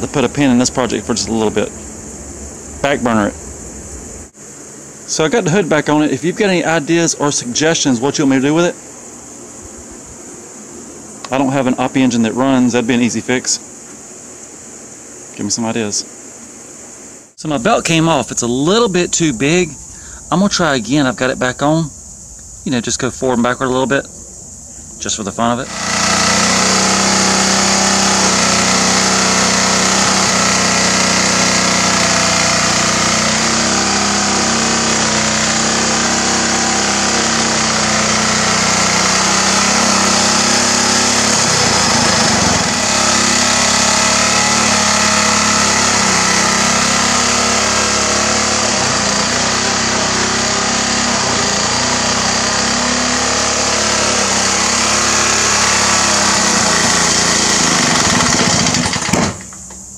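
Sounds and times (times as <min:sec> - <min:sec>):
small engine running: 0:00.0 - 0:04.4, 0:25.6 - 0:59.7.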